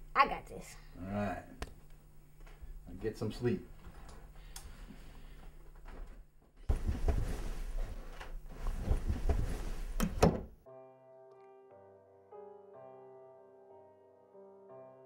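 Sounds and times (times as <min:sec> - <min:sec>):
bed creaking and bumping: 0:03.8 - 0:10.6
bedclothes rustling: 0:03.9 - 0:10.5.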